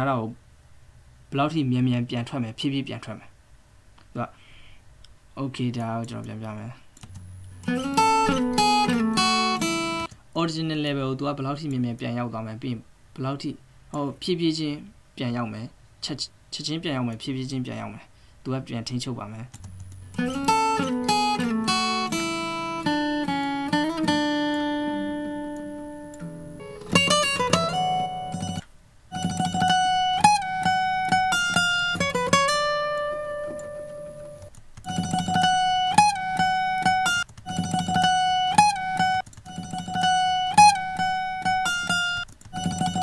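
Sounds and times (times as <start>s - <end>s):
plucked guitar notes with slides: 7.4s - 10.1s, 19.8s - 43.0s.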